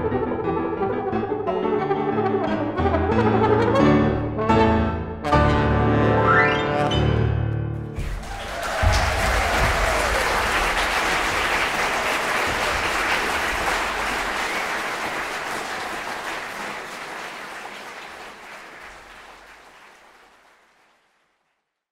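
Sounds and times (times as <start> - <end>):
audience applauding: 8.0 - 21.7.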